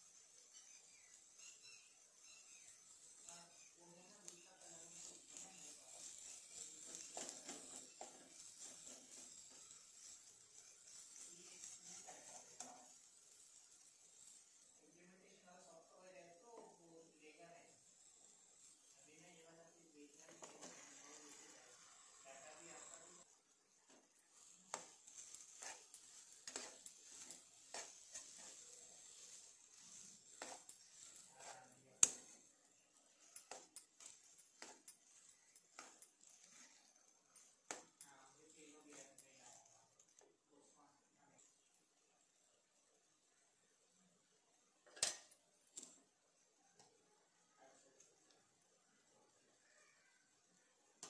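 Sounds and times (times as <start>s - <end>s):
faint steady hiss: 0.0s - 51.0s
ladle scraping a pot: 0.1s - 14.7s, 20.1s - 23.3s, 24.4s - 39.8s.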